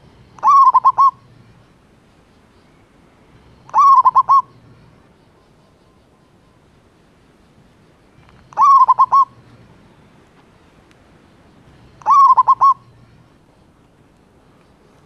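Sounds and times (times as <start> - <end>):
dove cooing: 0.0 - 1.8, 3.3 - 6.4, 8.2 - 9.7, 11.5 - 13.7.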